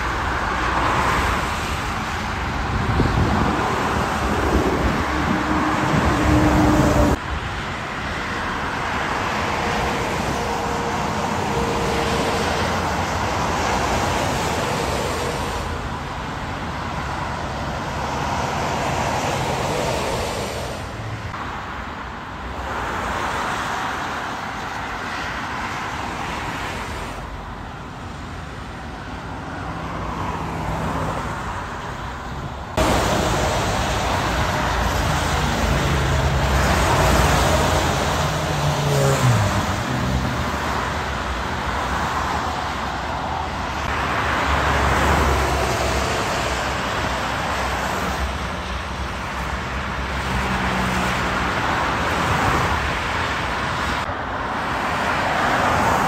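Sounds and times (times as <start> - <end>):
car and truck engines humming: 0.0 - 56.0
tyres hissing on wet road: 32.8 - 40.8
vehicle passing by: 35.2 - 40.7.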